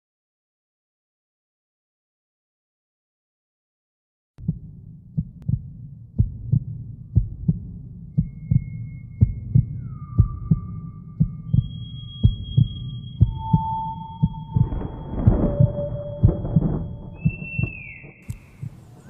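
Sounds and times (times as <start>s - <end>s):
heartbeat thumps: 4.4s - 19.0s
low rumble: 4.4s - 19.0s.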